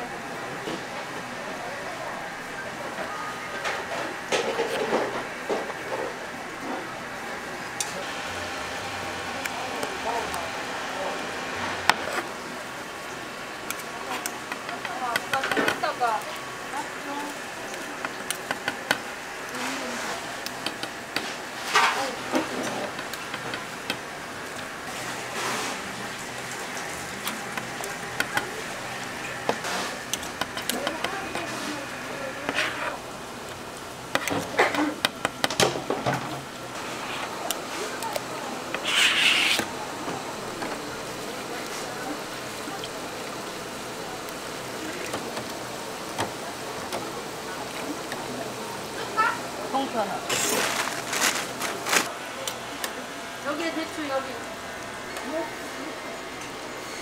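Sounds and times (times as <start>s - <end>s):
sharp crackles: 50.3s - 52.1s.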